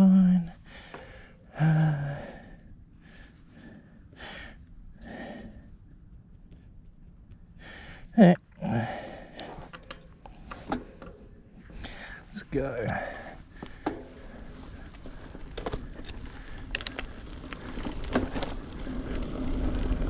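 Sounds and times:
person breathing heavily: 0.6s - 5.7s, 7.6s - 9.7s, 11.6s - 16.7s.

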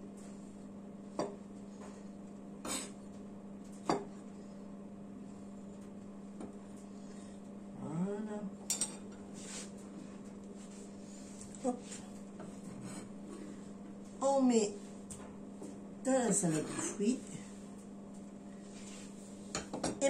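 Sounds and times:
low hum: 4.1s - 9.1s.

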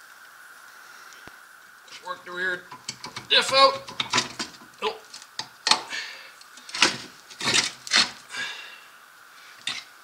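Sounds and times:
metal housing knocking and scraping: 1.9s - 5.9s, 6.6s - 8.2s, 9.6s - 9.8s.

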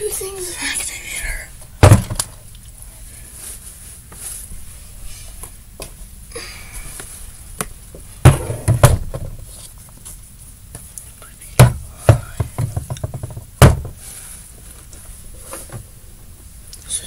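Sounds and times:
supplies knocking and thudding: 1.8s - 2.3s, 8.2s - 9.4s, 11.6s - 14.0s.

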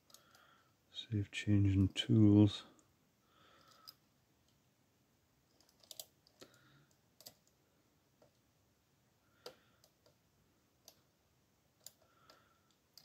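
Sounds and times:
lock pick metallic clicks: 5.5s - 6.5s.

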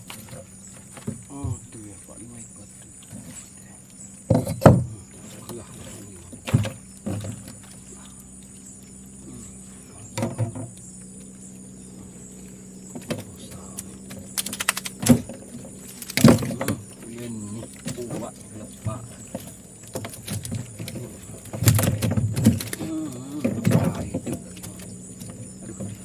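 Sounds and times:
steady low hum: 0.0s - 26.0s
fishing gear knocking in metal boat: 4.2s - 5.0s, 10.1s - 10.8s, 12.9s - 22.8s, 23.4s - 26.0s
quick clicks: 13.7s - 16.4s.

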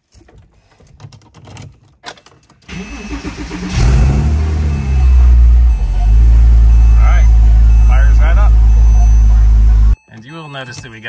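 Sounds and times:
car starter cranking: 2.2s - 10.0s
car engine revving and idling: 2.7s - 10.0s.

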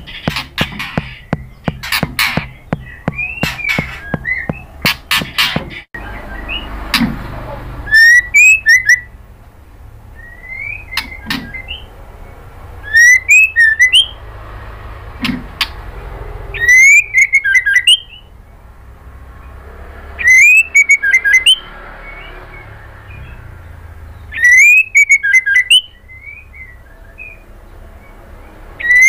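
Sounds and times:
bird singing whistled phrases: 2.4s - 4.7s, 7.9s - 9.1s, 10.2s - 11.9s, 12.8s - 14.2s, 16.6s - 18.3s, 20.2s - 21.7s, 24.3s - 27.5s, 28.8s - 29.0s.

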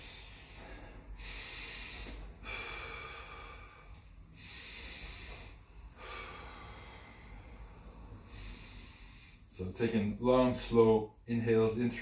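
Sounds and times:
man breathing deeply: 0.0s - 9.6s.

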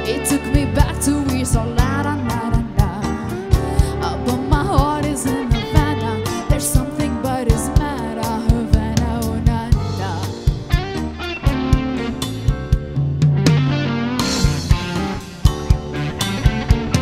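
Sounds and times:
woman singing: 0.0s - 10.5s
drum kit beat: 0.0s - 17.0s
electric guitar: 0.0s - 17.0s
keyboard: 0.0s - 17.0s.

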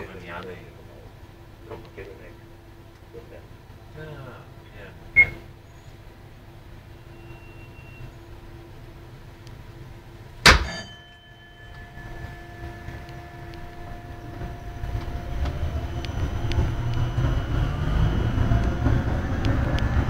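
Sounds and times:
low steady hum: 0.0s - 20.0s
sharp metallic clang: 10.4s - 15.0s.

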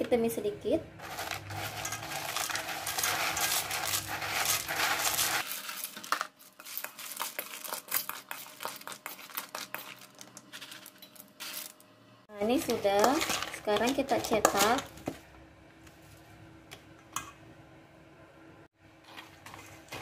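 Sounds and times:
spoon clicking and scraping: 1.0s - 11.7s
cereal flakes pattering into bowl: 1.0s - 11.8s.

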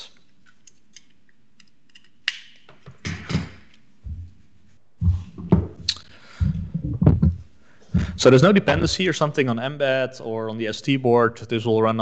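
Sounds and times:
murmured voice: 6.4s - 7.3s, 8.0s - 9.2s.

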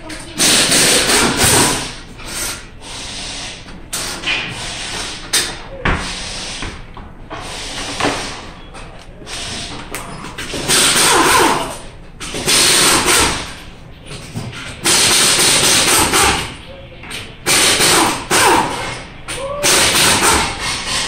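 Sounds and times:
air hissing: 0.4s - 8.6s
air impact wrench: 0.4s - 8.6s, 9.3s - 16.6s, 17.4s - 21.0s.

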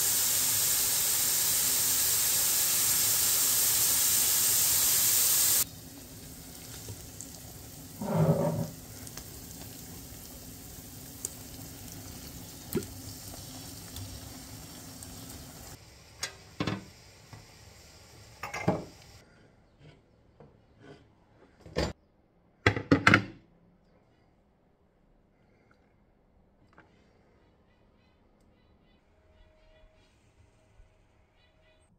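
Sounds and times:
meat sizzling in a pot: 0.0s - 19.2s
wooden spoon scraping a pot: 8.0s - 9.2s, 19.2s - 21.6s
kitchen knocks and clunks: 16.6s - 16.9s, 18.4s - 19.0s, 22.7s - 23.4s.

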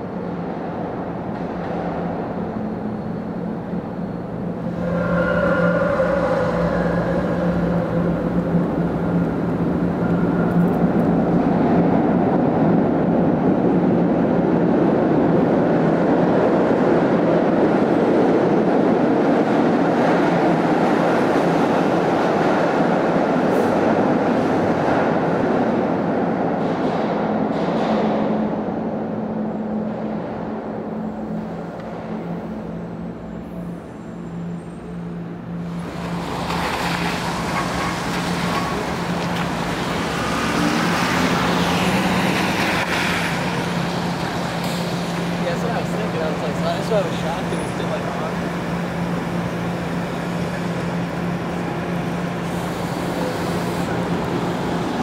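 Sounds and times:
rail car wheels rumbling: 0.0s - 55.0s
high whine: 3.8s - 11.8s.

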